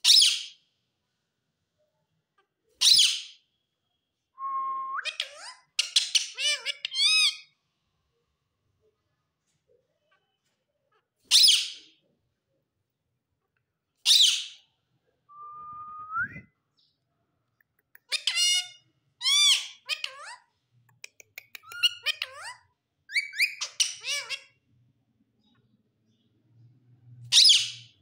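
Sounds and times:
parakeet chattering mimicked speech: 0:05.0 - 0:07.5, 0:18.0 - 0:24.6
parakeet screeching: 0:05.0 - 0:07.5, 0:18.1 - 0:20.4, 0:21.7 - 0:24.6.

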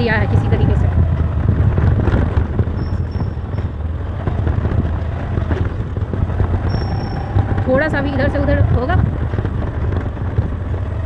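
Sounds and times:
scooter motor and tyre noise: 0:00.0 - 0:11.0
wind buffeting microphone: 0:00.0 - 0:11.0.

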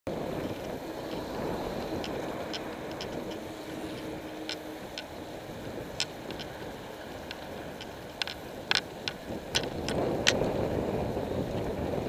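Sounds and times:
tyres on tarmac: 0:00.1 - 0:12.0
wind rushing: 0:00.1 - 0:12.0.

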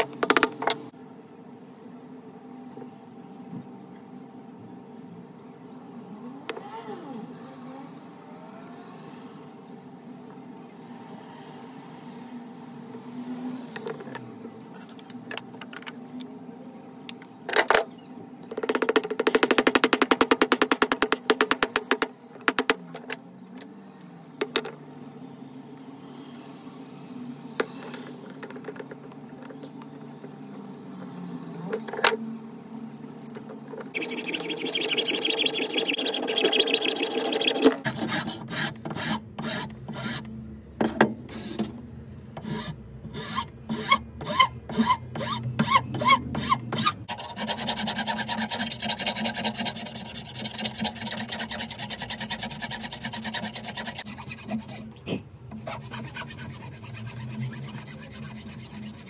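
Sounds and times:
hacksaw cutting wood: 0:34.0 - 0:40.2, 0:42.4 - 0:54.8, 0:55.6 - 0:59.0
metal file rasping on wood: 0:34.0 - 0:40.2, 0:42.4 - 0:54.9, 0:55.6 - 0:59.0.

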